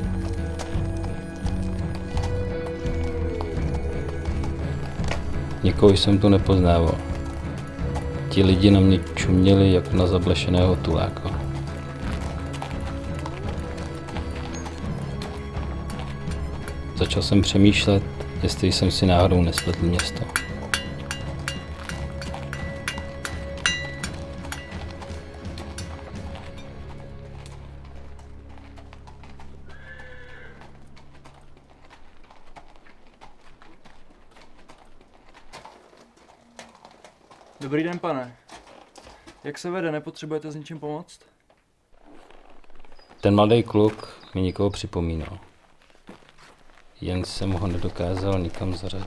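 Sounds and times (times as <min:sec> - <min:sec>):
film music: 0:00.0 - 0:37.9, 0:44.8 - 0:49.0
horse hooves clip-clopping: 0:00.0 - 0:40.0, 0:41.4 - 0:49.0
horse whinny: 0:28.8 - 0:31.1.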